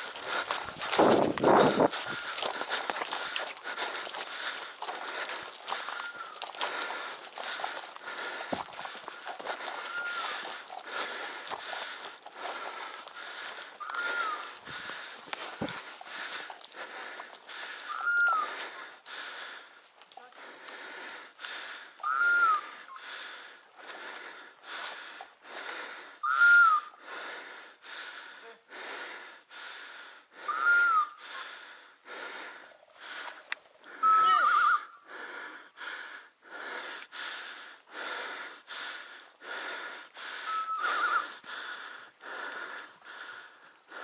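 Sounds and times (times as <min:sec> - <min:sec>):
person breathing heavily: 0:00.0 - 0:26.3, 0:26.9 - 0:34.2, 0:34.9 - 0:44.0.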